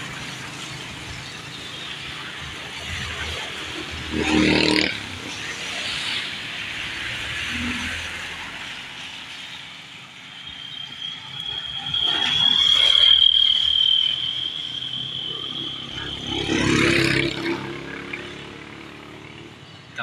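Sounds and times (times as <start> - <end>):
high-pitched whine: 0.0 - 20.0
vehicles passing on wet road: 0.0 - 20.0
motorcycle engine passing: 15.8 - 19.8.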